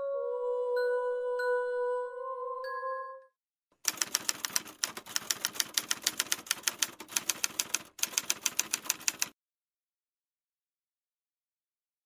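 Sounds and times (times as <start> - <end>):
typewriter key clicks: 3.9 - 9.3.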